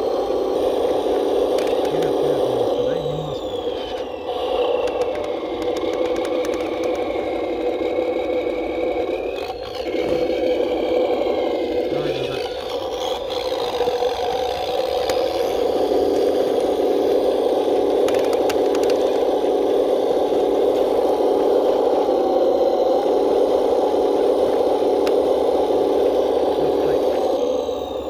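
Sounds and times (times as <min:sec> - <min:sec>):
toy truck electric motor running: 0:00.0 - 0:28.0
sharp clicks: 0:04.6 - 0:07.0.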